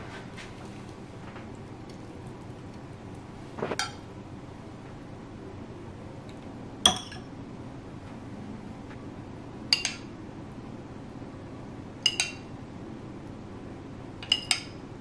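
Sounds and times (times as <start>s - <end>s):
utensil clinking against dishes: 6.9s - 7.3s, 9.7s - 10.1s, 12.0s - 12.5s, 14.2s - 14.8s.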